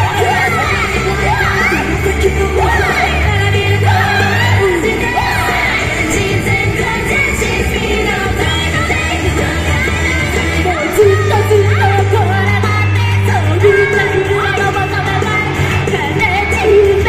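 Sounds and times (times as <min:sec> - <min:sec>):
group singing into microphones: 0:00.0 - 0:17.0
upbeat pop backing track: 0:00.0 - 0:17.0.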